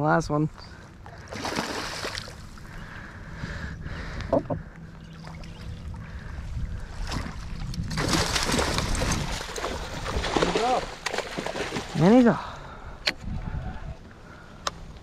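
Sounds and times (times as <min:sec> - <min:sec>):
low rumble of wind and water: 0:00.0 - 0:15.0
fish thrashing and splashing: 0:01.3 - 0:02.4, 0:06.9 - 0:12.0.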